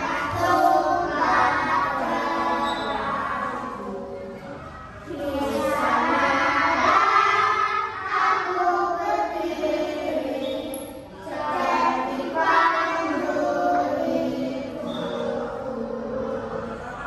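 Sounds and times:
children singing in unison: 0.0 - 17.0.

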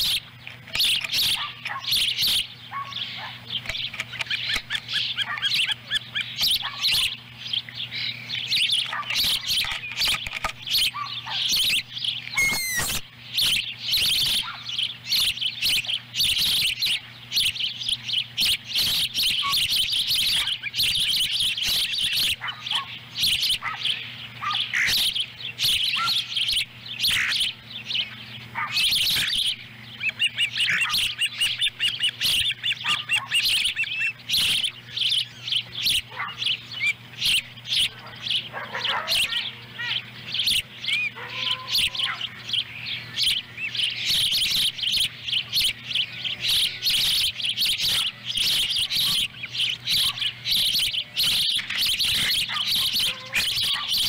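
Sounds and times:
young ospreys chirping: 0.0 - 54.0.

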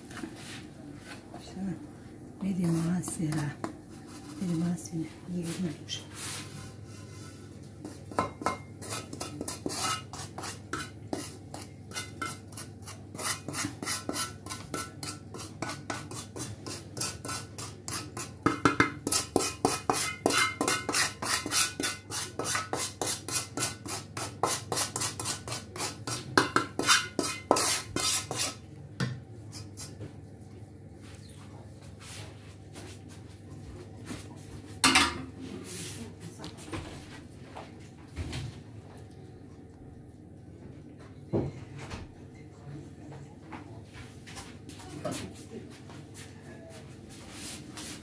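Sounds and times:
wooden spatula scraping a pan: 2.6 - 4.8, 5.4 - 28.6.

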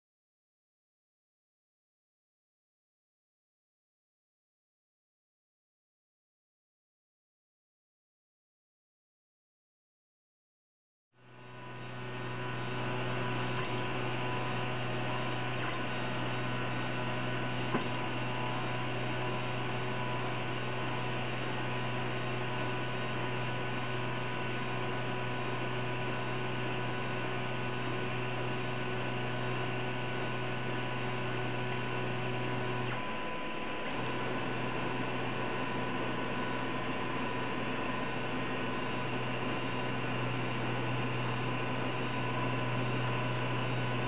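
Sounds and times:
three d printer electrical hum: 11.2 - 44.0.

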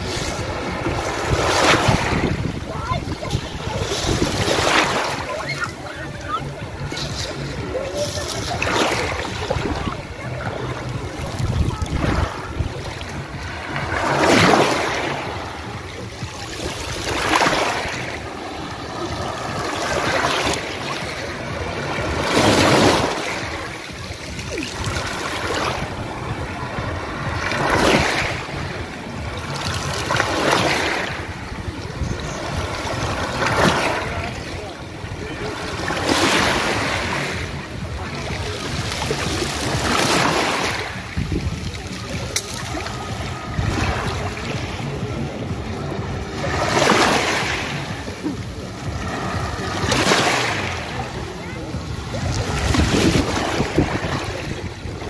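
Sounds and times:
waves washing over pebble beach: 0.0 - 5.6, 11.1 - 15.6, 16.5 - 28.8, 29.4 - 34.6, 35.4 - 37.6, 38.4 - 45.0, 46.2 - 48.2, 48.9 - 50.9, 52.2 - 55.0.

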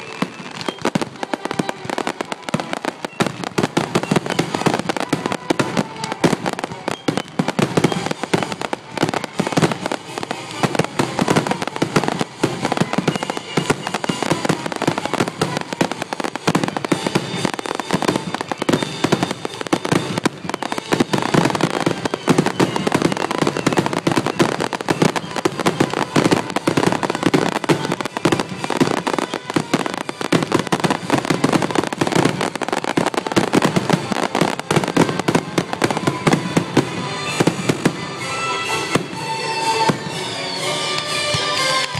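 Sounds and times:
fireworks bangs and crackles: 0.0 - 41.9.

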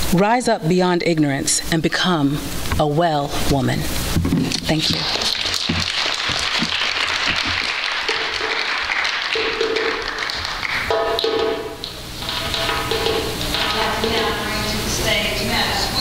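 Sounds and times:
audience applauding: 4.8 - 14.5.

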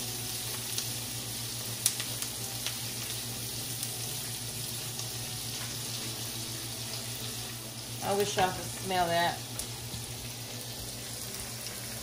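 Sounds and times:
oil crackles and pops: 0.0 - 6.2, 6.9 - 12.0
onions sizzling in a skillet: 0.0 - 12.0.

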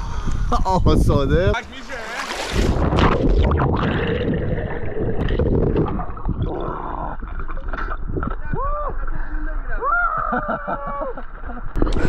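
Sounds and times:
water sloshing and gurgling: 0.0 - 9.5.

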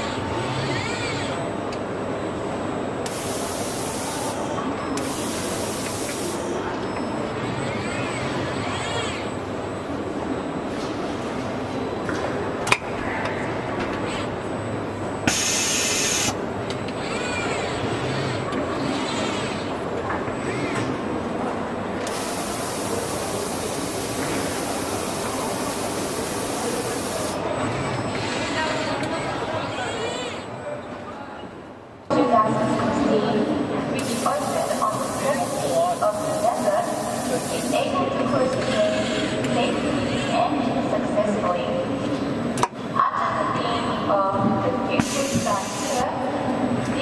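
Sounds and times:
robot servo motors whining: 0.4 - 1.4, 16.9 - 19.8
loud bursts of hiss: 3.1 - 4.4, 15.3 - 16.4, 22.1 - 27.4, 45.0 - 46.0.

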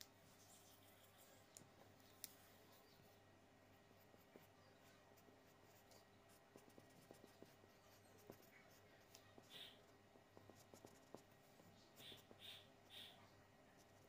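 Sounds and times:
low steady hum: 0.0 - 14.0
highlighter scratching on paper: 3.9 - 14.0.

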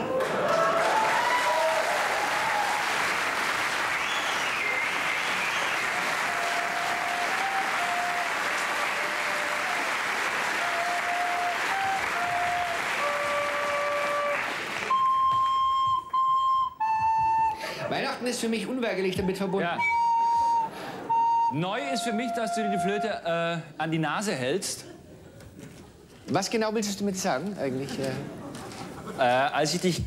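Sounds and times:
audience applauding: 0.0 - 15.3
recorder notes: 10.4 - 17.6, 19.6 - 23.3.

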